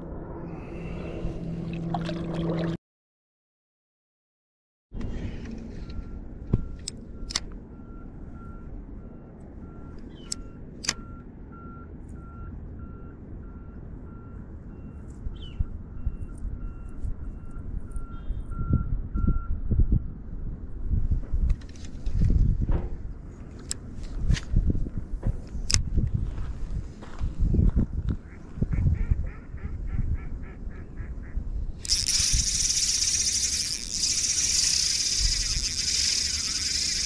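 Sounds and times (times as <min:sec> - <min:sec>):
wind rumble on microphone: 0:00.0 - 0:02.8, 0:12.5 - 0:37.0
reversing alarm beeping: 0:05.6 - 0:15.2, 0:15.8 - 0:19.6, 0:31.8 - 0:37.0
fishing reel clicks: 0:31.8 - 0:37.0.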